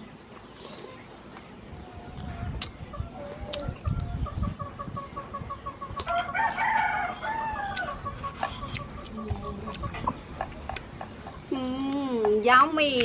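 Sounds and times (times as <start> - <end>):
rooster crowing: 6.1 - 8.0.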